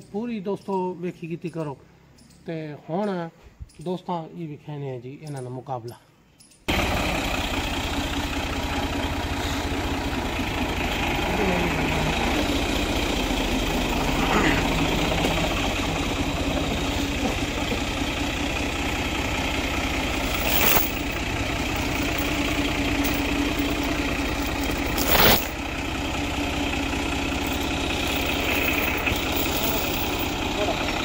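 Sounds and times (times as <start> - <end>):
tractor diesel engine idling: 6.7 - 31.0.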